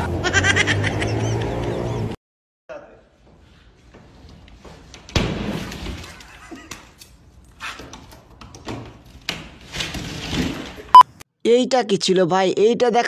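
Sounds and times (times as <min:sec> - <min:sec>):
drywall smashing: 0:05.1 - 0:06.1.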